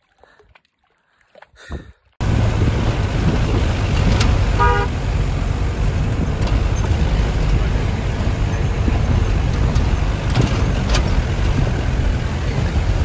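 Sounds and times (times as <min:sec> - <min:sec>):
engine and road rumble: 0:02.2 - 0:13.0
short horn toot: 0:04.6 - 0:04.9.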